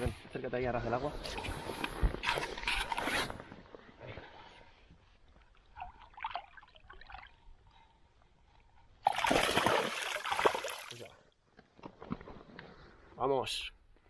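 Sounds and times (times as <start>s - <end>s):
fish splashing in water: 9.0s - 11.0s.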